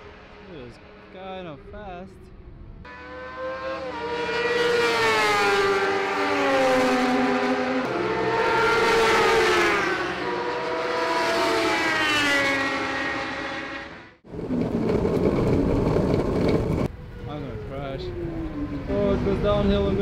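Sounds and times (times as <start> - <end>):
motorcycle engine passing at high revs: 2.4 - 16.9.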